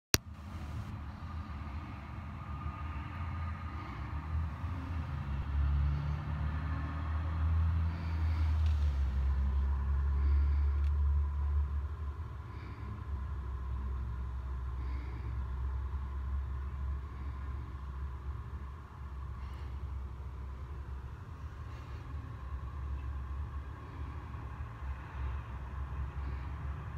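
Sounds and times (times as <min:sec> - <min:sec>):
city traffic rumble: 0:00.1 - 0:26.9.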